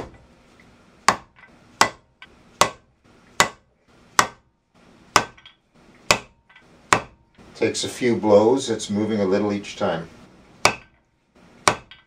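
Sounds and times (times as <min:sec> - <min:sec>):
hammer tapping on dowel: 0:01.1 - 0:04.4.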